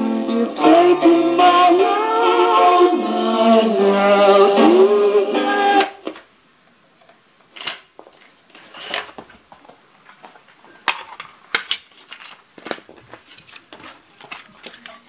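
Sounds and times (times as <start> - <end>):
plastic sleeve rustling: 7.9 - 15.0.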